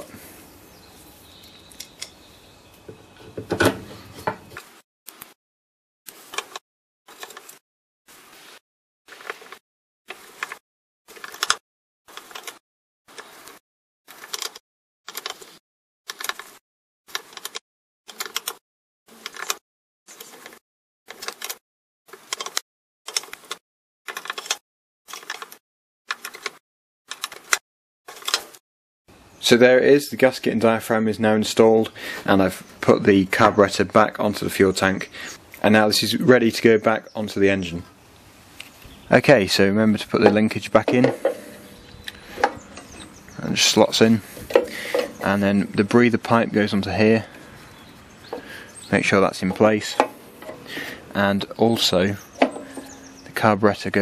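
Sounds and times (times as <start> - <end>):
screwdriver clicking and scraping: 10.4 - 15.5, 16.1 - 18.6, 40.3 - 43.1, 44.3 - 45.4, 49.4 - 53.3.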